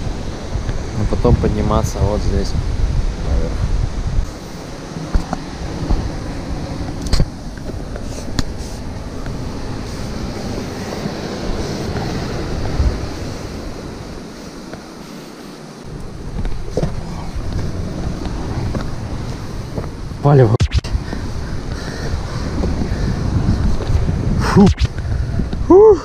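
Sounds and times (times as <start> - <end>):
wind buffeting microphone: 0.0 - 26.0
clothing rubbing on camera: 7.0 - 13.6.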